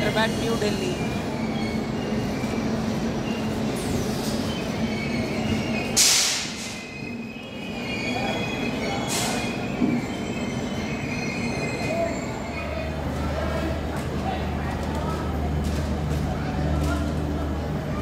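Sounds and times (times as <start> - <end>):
wheel squeal: 0.3 - 6.0, 6.6 - 13.0.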